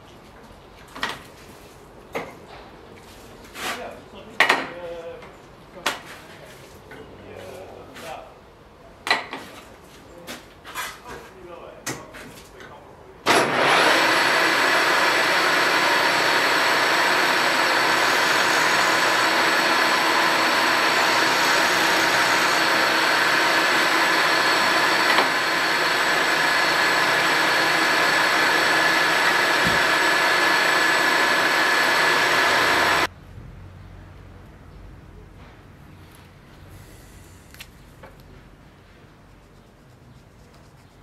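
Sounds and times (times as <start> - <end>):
milling machine cutting metal: 13.3 - 33.1.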